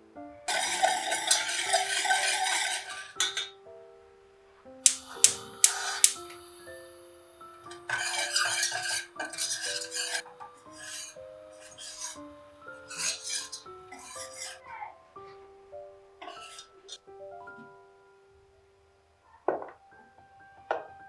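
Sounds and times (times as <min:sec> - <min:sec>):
soft piano music: 0:00.0 - 0:21.0
metal spoon scraping saucepan: 0:00.5 - 0:03.5, 0:07.7 - 0:14.6, 0:16.2 - 0:17.0.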